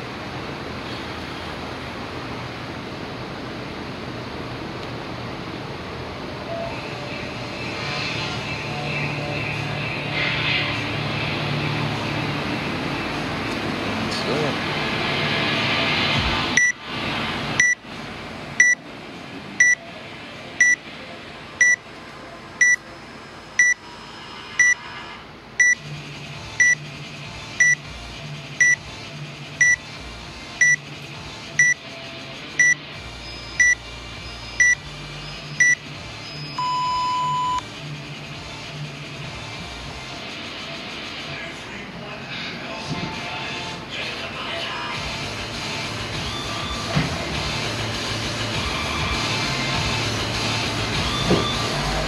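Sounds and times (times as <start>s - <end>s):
long low timer beep: 16.6s - 16.8s, 18.6s - 18.8s, 19.6s - 19.8s, 20.6s - 20.8s, 21.6s - 21.8s, 22.6s - 22.8s, 23.6s - 23.8s, 24.6s - 24.8s, 25.6s - 25.8s, 27.6s - 27.8s, 28.6s - 28.8s, 29.6s - 29.8s, 30.6s - 30.8s, 32.6s - 32.8s, 33.4s - 33.8s, 34.6s - 34.8s, 35.6s - 35.8s, 36.4s - 37.6s
short high timer beeps: 16.6s - 16.8s, 19.6s - 19.8s, 20.6s - 20.8s, 30.6s - 30.8s, 33.6s - 33.8s, 34.6s - 34.8s, 36.6s - 37.6s.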